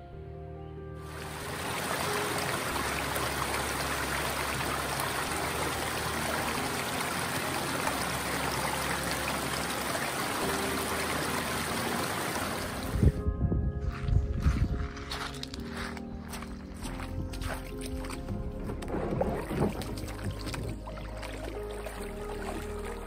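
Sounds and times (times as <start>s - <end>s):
brook trickling over rocks: 1.1s - 13.2s, 14.4s - 23.0s
low thumps: 16.1s - 21.0s.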